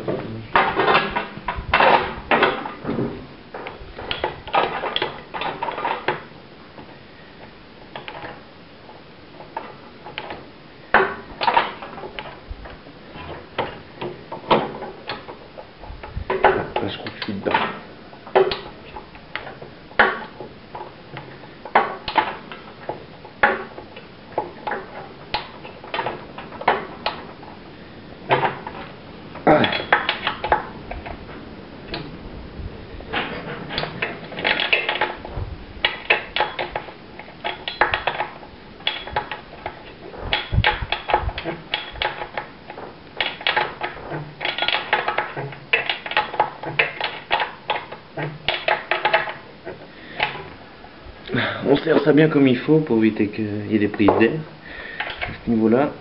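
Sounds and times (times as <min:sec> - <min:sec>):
tools and metal parts clinking: 0:28.3 - 0:31.2, 0:33.1 - 0:49.4.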